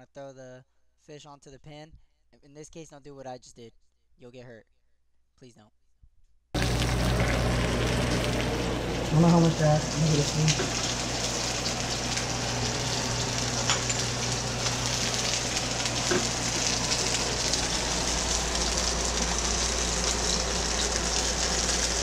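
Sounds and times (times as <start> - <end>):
fish frying in oil: 6.6 - 22.0
steady low hum: 6.6 - 22.0.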